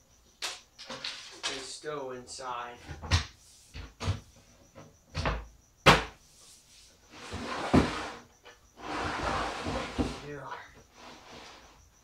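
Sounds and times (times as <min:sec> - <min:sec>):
wooden box scraping on bench: 0:07.1 - 0:11.8.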